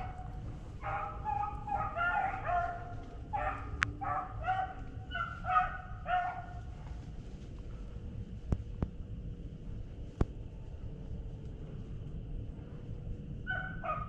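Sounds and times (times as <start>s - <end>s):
hounds baying and barking: 0.0s - 7.1s, 13.4s - 14.0s.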